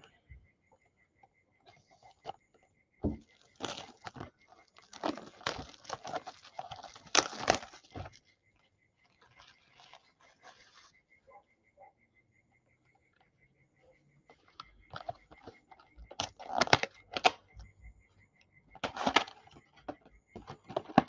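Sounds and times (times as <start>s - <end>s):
plastic shrink wrap crinkling and tearing: 3.3s - 8.2s, 9.0s - 10.9s, 16.2s - 17.4s.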